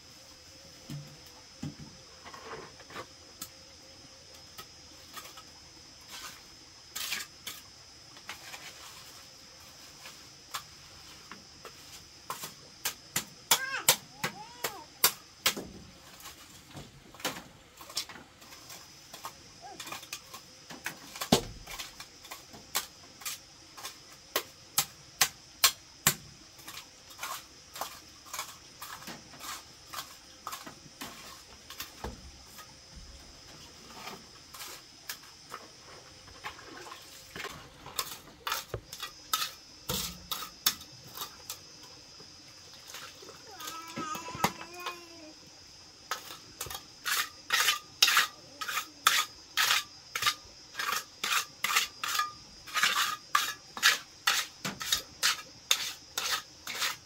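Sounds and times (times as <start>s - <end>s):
trowel scraping wet cement: 5.0s - 9.2s, 26.6s - 32.0s, 37.0s - 41.6s, 46.1s - 57.0s.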